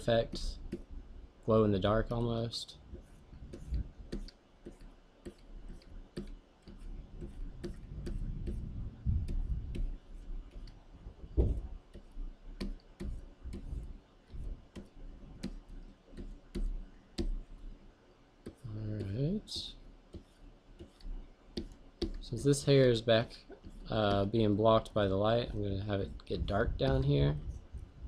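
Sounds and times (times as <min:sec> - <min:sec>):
stylus tapping on screen: 0:00.3 - 0:00.9, 0:02.9 - 0:17.6, 0:18.4 - 0:22.2, 0:26.3 - 0:28.0
low dull thumps: 0:07.2 - 0:11.9, 0:12.6 - 0:15.6, 0:26.3 - 0:28.0.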